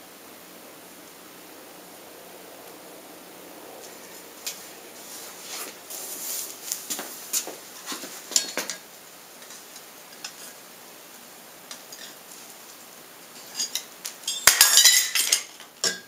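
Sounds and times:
metal tools clinking on anvil: 13.5s - 16.0s.

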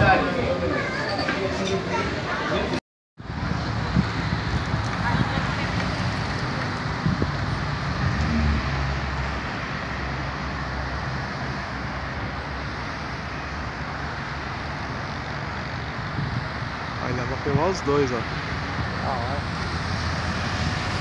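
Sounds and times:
road traffic passing: 0.0s - 21.0s
passing vehicle low rumble: 3.2s - 11.5s.

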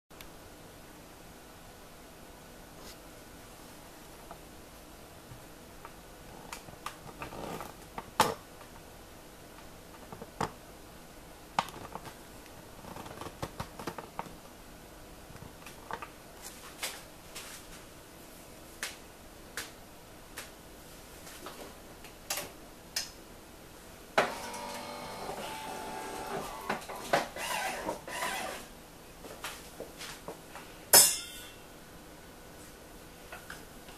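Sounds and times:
coffee machine motor whirring: 24.2s - 28.6s.

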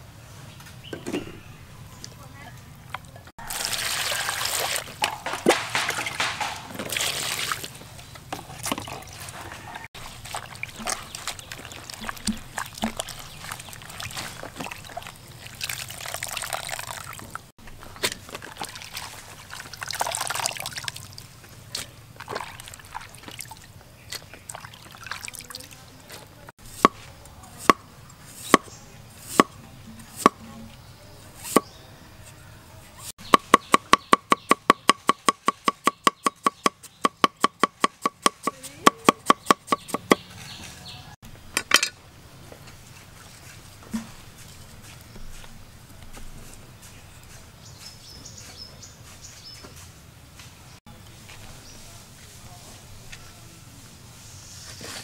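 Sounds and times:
water sloshing: 3.4s - 26.5s
wet squelching of kneading: 6.8s - 26.3s
cleaver chopping on wooden board: 26.8s - 27.8s, 30.2s - 30.4s, 33.2s - 40.2s.

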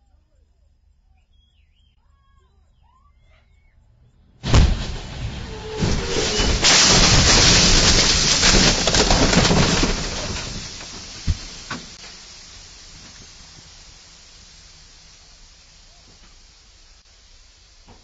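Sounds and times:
crunching metal: 4.4s - 15.6s
debris falling: 4.4s - 15.6s
glass breaking: 4.5s - 12.0s.

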